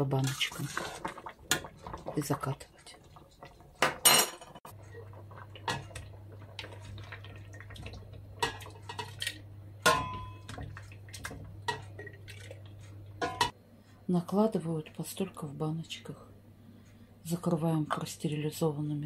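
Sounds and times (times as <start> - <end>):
ladle scraping a metal pot: 0.0 - 2.0.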